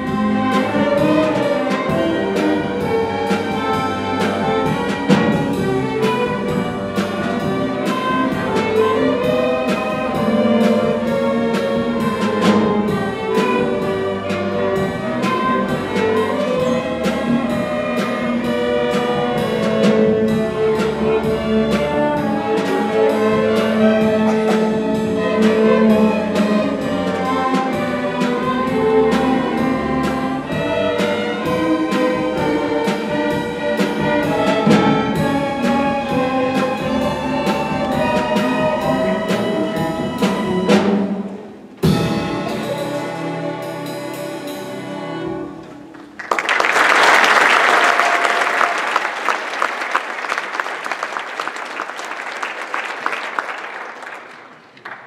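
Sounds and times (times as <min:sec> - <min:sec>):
drum kit beat: 0:00.0 - 0:44.8
string orchestra playing: 0:00.0 - 0:55.0
audience applauding: 0:45.9 - 0:55.0.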